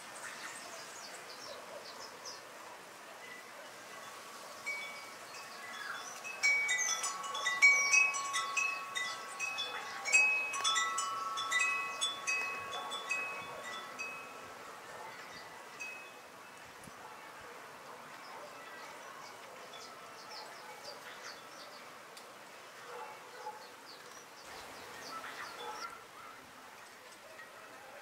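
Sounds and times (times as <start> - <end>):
wind chimes ringing: 4.0 - 16.4.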